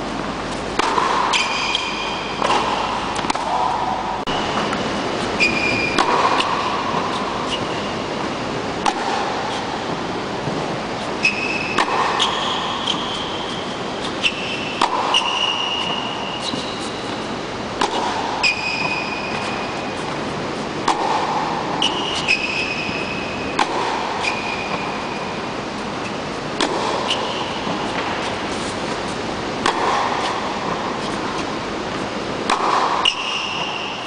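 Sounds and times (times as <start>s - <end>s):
racket hitting tennis ball: 0.4s - 34.0s
ball bounce: 0.8s - 7.9s, 8.8s - 9.3s, 11.3s - 17.2s, 32.4s - 33.9s
shoe squeaks: 1.3s - 2.4s, 4.3s - 6.1s, 7.1s - 8.1s, 11.0s - 17.3s, 18.4s - 20.1s, 21.8s - 23.3s, 24.2s - 25.0s.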